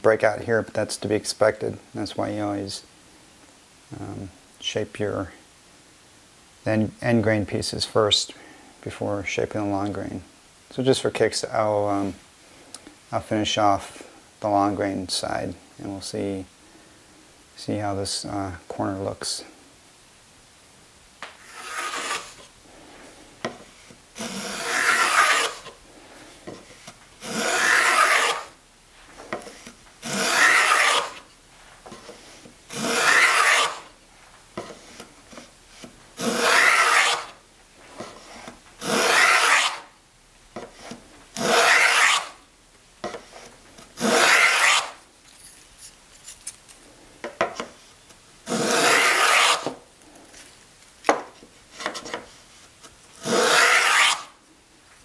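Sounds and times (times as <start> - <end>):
wood plane rasping strokes: 21.4 - 22.4, 24.2 - 25.7, 27.2 - 28.5, 29.4 - 31.2, 32.0 - 33.9, 36.2 - 37.4, 38.0 - 39.9, 40.7 - 42.4, 43.4 - 45.0, 48.5 - 49.8, 53.2 - 54.3.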